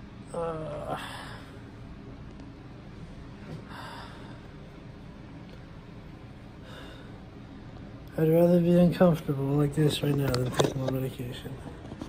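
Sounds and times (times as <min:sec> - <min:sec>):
low room hum: 0:00.0 - 0:12.0
person breathing out heavily: 0:03.6 - 0:04.6, 0:06.6 - 0:07.2.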